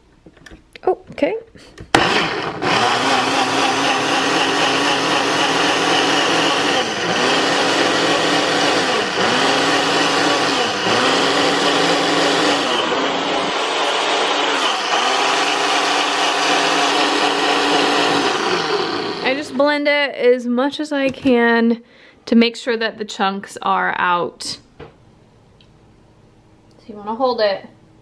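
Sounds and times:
blender motor running: 1.9 - 19.6.

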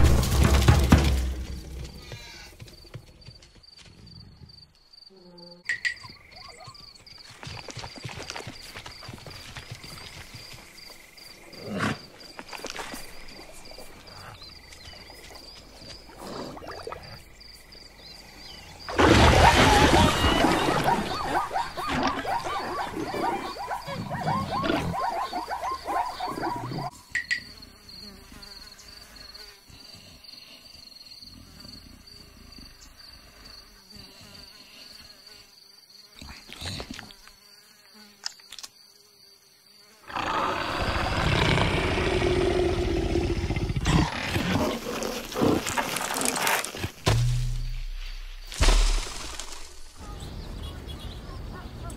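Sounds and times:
high insect buzz: 4.3 - 6.4, 23.3 - 51.2
cartoon animal sounds: 19.1 - 26.9.

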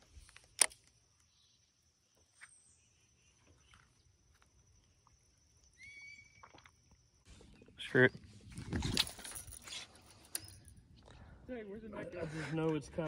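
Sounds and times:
bird chirps: 5.6 - 6.5.

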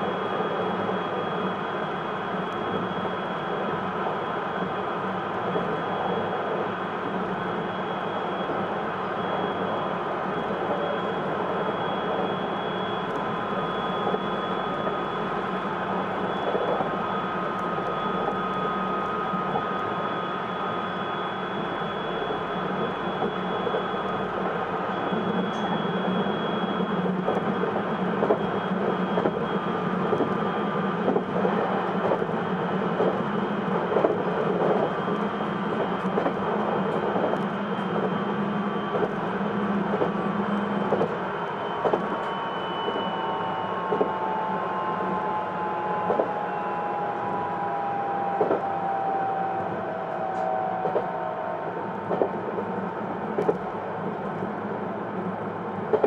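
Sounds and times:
train motor whine: 0.0 - 52.7
train wheels rumbling on rail: 0.0 - 56.0
rail joint clacks: 40.8 - 41.2, 41.8 - 44.3, 49.5 - 51.3, 52.0 - 52.7, 53.3 - 54.5.

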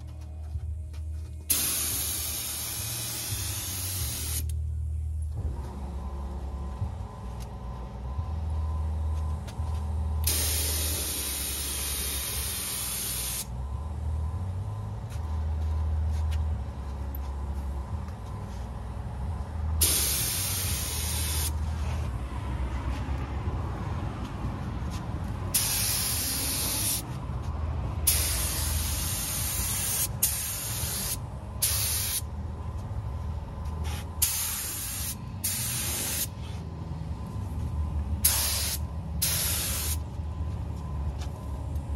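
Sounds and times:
steady low rumble: 0.0 - 41.9
compressed air gun hissing: 1.5 - 4.5, 10.2 - 13.5, 19.8 - 21.5, 25.6 - 27.0, 28.1 - 32.2, 33.8 - 36.3, 38.2 - 40.0.

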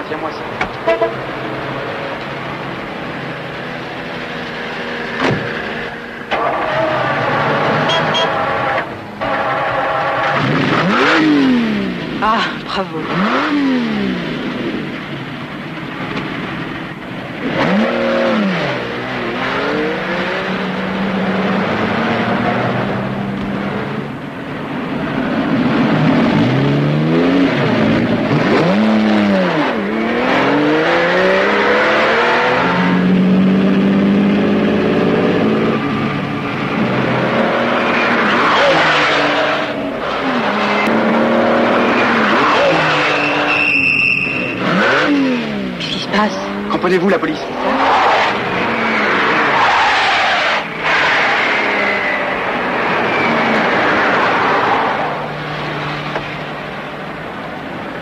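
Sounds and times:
sports car engine revving: 2.4 - 12.3, 13.0 - 24.2, 25.0 - 57.4
tyre squeal: 42.0 - 45.2.

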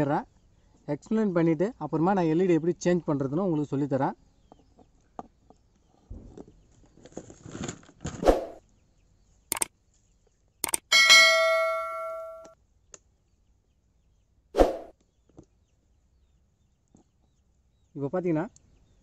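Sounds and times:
sharp mouse clicks: 9.5 - 9.7, 10.6 - 10.9
bell-like ding: 10.9 - 12.6.

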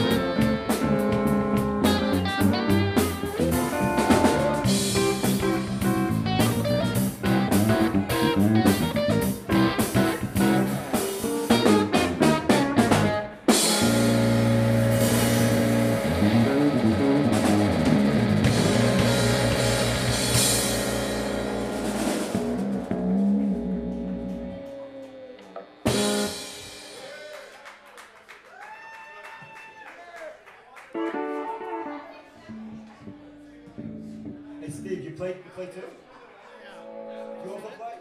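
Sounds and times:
pedal steel guitar: 0.0 - 26.9, 31.0 - 34.6
live funk band playing: 0.0 - 27.2, 30.9 - 34.9
busy drum hits: 25.9 - 27.1.

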